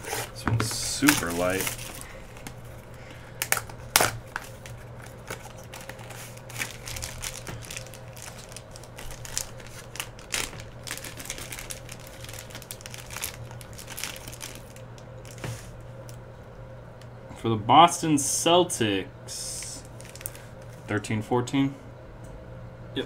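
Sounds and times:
plastic wrapper crinkling: 0:00.0 - 0:16.2, 0:19.6 - 0:20.8.

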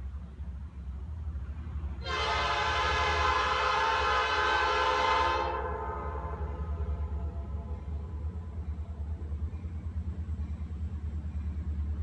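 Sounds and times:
locomotive air horn blast: 0:02.0 - 0:07.8.

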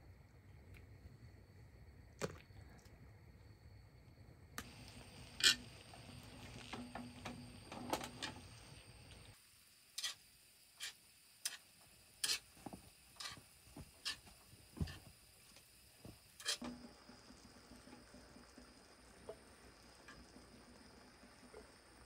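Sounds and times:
meat slices laid in pan: 0:04.6 - 0:08.9
utensils clicking at pan: 0:05.4 - 0:05.7, 0:10.0 - 0:10.2, 0:10.8 - 0:11.6, 0:12.2 - 0:12.5, 0:13.2 - 0:13.4.

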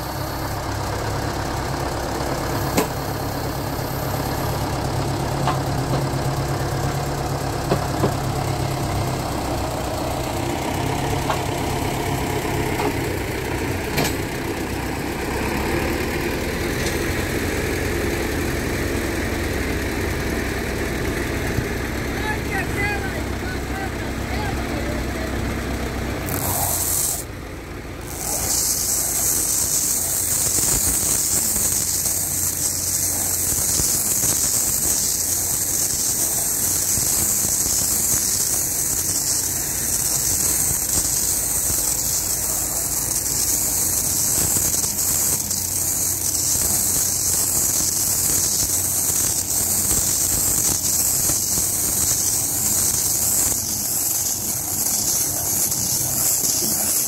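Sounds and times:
tractor engine hum: 0:00.0 - 0:57.0
bale wrapper hissing: 0:02.4 - 0:04.6, 0:26.2 - 0:27.3, 0:28.0 - 0:57.0.

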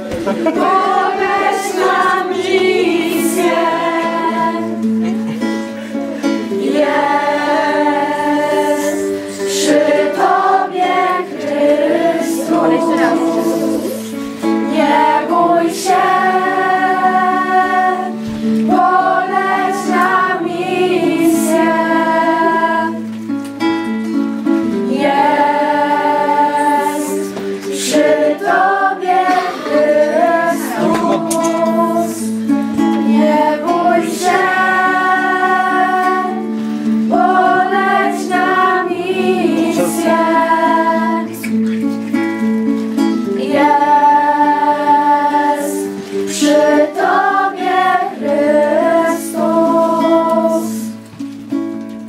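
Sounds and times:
girls singing together: 0:00.0 - 0:23.4, 0:24.1 - 0:51.2.

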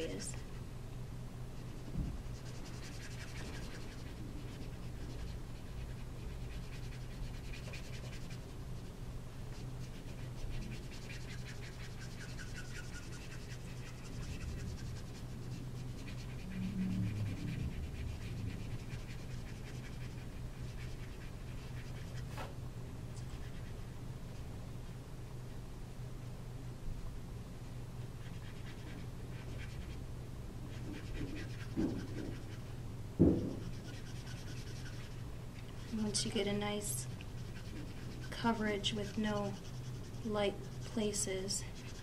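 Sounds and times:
marker scratching on cardstock: 0:00.0 - 0:00.4, 0:01.6 - 0:08.5, 0:09.5 - 0:22.5, 0:28.2 - 0:30.0, 0:30.6 - 0:35.2, 0:35.8 - 0:42.0
low steady hum: 0:00.0 - 0:42.0.

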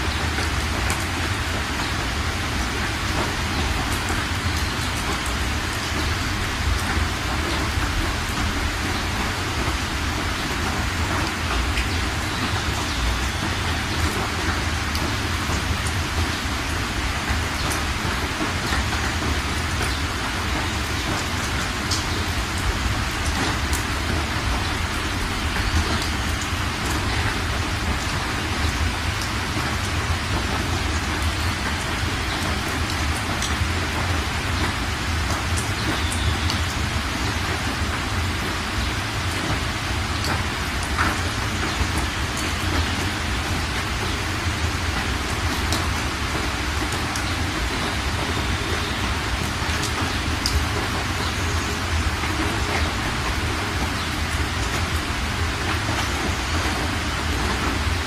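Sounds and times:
rain falling on water: 0:00.0 - 0:58.0
sharp drip ticks: 0:24.6 - 0:36.8, 0:48.2 - 0:52.9.

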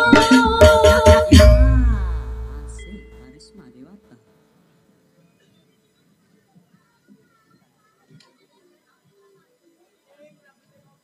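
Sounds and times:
drum strikes: 0:00.0 - 0:03.2
live band music: 0:00.0 - 0:03.2.

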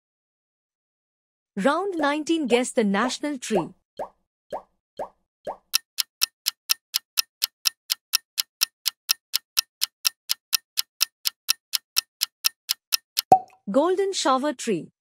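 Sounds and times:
clock ticking: 0:05.5 - 0:13.6.

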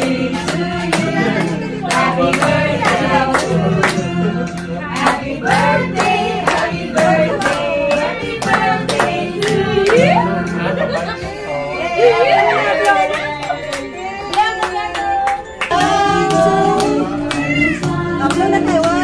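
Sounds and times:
hands clapping along: 0:00.0 - 0:11.0, 0:12.8 - 0:19.0
music with singing over a beat: 0:15.7 - 0:19.0.

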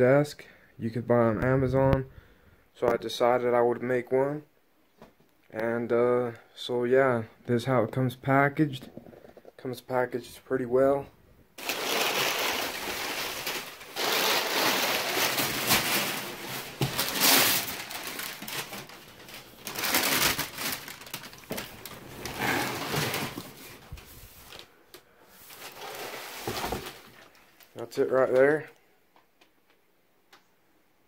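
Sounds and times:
packing paper rustling and crinkling: 0:11.6 - 0:24.8, 0:25.4 - 0:28.5.

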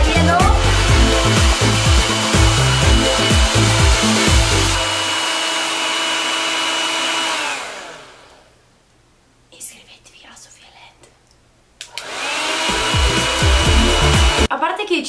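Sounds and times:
background music with heavy beat: 0:00.0 - 0:04.8, 0:12.7 - 0:14.5
hair dryer running: 0:00.0 - 0:08.5, 0:11.9 - 0:14.5.

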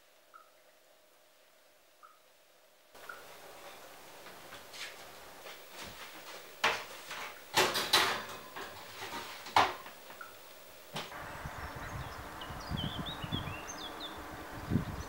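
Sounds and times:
metal tray clunking in oven: 0:07.5 - 0:09.8
oven door clattering: 0:07.5 - 0:09.8.

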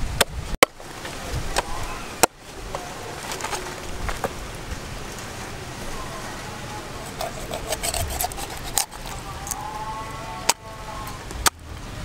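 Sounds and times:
cleaver chopping on wooden block: 0:07.1 - 0:09.1.

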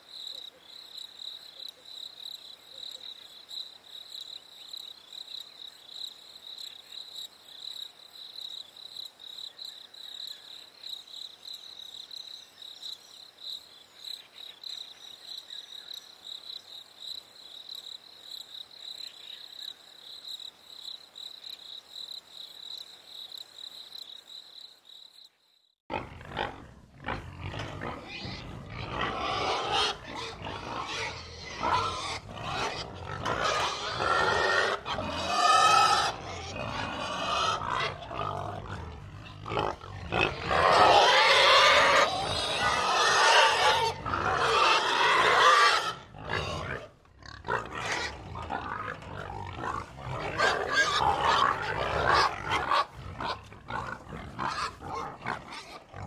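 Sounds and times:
crickets chirping: 0:00.0 - 0:25.8
pigs grunting and crying: 0:25.9 - 0:56.0.

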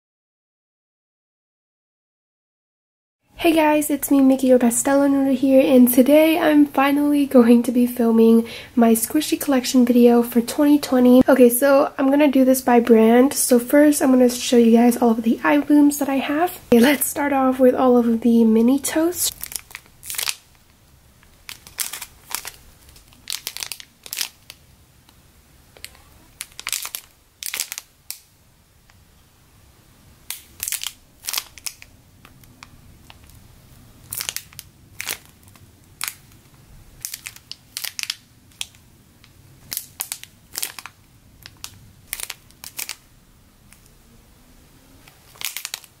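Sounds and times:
plastic bags crinkling: 0:19.0 - 0:24.7, 0:25.7 - 0:28.3, 0:30.2 - 0:43.1, 0:45.0 - 0:46.0.

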